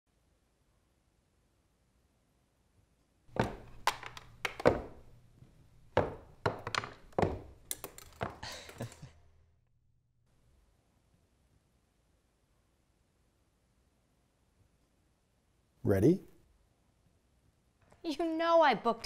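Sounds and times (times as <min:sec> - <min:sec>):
swim fin footsteps on wooden stairs: 0:03.3 - 0:08.9.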